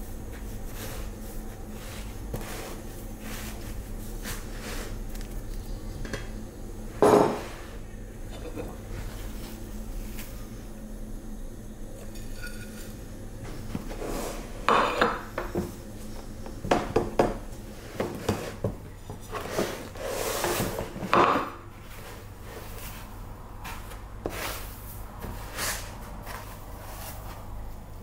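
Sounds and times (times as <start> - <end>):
hands rustling in breadcrumbs: 0.1 - 5.9
ceramic dishes clinking: 12.0 - 12.9.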